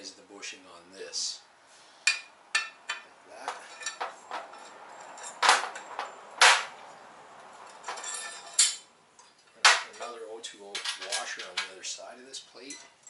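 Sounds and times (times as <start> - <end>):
metal parts clinking and clanking: 2.1 - 6.7, 7.6 - 11.9, 12.5 - 13.0
metal scraping rattle: 2.9 - 6.7, 7.6 - 8.9.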